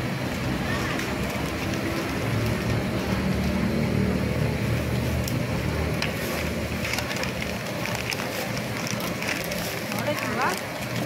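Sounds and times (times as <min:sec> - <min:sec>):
low steady engine-like hum: 0:00.0 - 0:11.0
stiff paper crinkling: 0:05.2 - 0:11.0.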